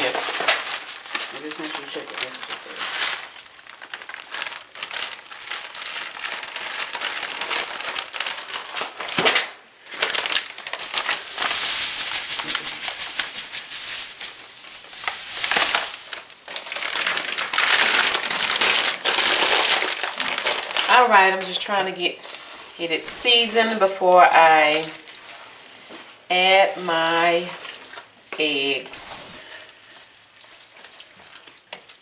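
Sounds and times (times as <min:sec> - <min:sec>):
plastic bags crinkling: 0:00.0 - 0:32.0
sugar pouring: 0:10.5 - 0:18.2.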